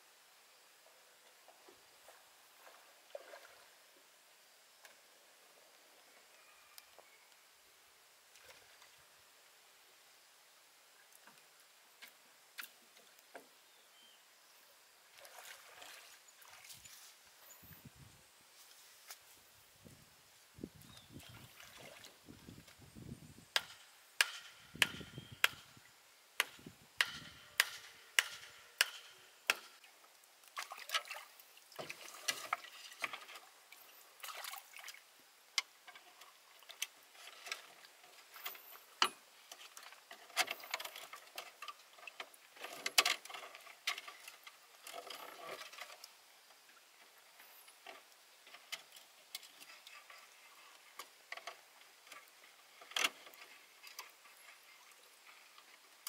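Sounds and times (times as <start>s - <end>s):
sharp knocks: 23.5s - 25.7s, 26.4s - 29.8s.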